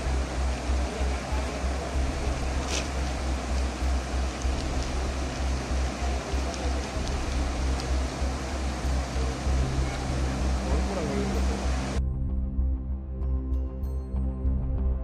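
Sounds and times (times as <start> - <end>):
floodwater rushing: 0.0 - 12.0
low rumble: 0.0 - 13.3.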